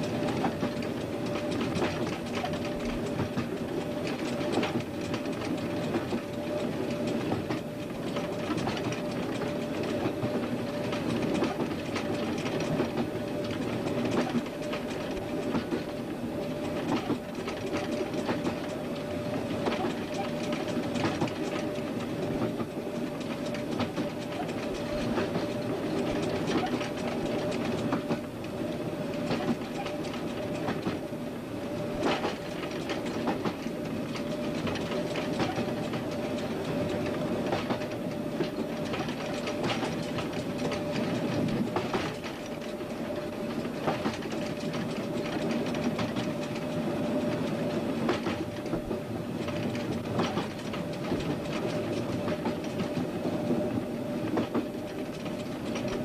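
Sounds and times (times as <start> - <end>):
wheels clicking over rail joints: 0.0 - 16.0, 16.6 - 18.9, 19.6 - 28.4, 29.2 - 31.0, 32.0 - 56.0
train rumbling on track: 0.0 - 56.0.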